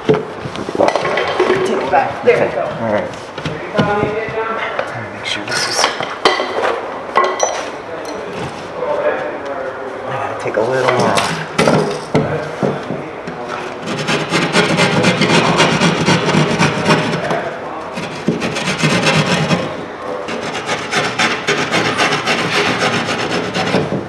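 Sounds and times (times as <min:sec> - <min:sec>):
hand saw cutting drywall: 0:13.8 - 0:17.4, 0:18.0 - 0:24.0.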